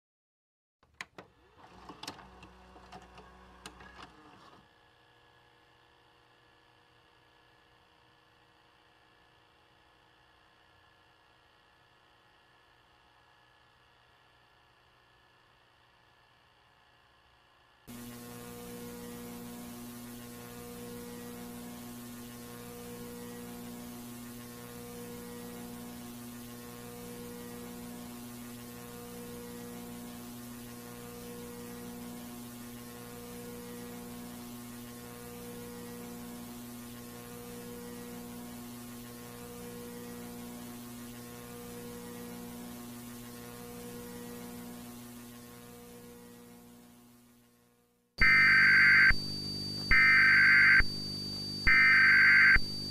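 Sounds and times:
electrical hum with hiss: 0:01.4 - 0:52.9
pulsing two-tone signal: 0:48.2 - 0:52.9.

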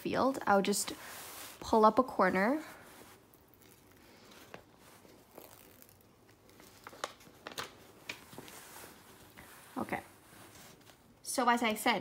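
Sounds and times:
plastic sheet peeling with crackles: 0:02.4 - 0:11.1.

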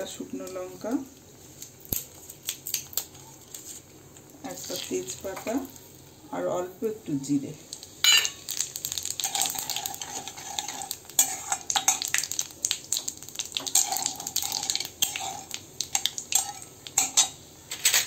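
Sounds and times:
spices sizzling in hot oil: 0:00.0 - 0:17.8
spatula scraping metal pan: 0:09.2 - 0:12.0, 0:13.6 - 0:15.5.

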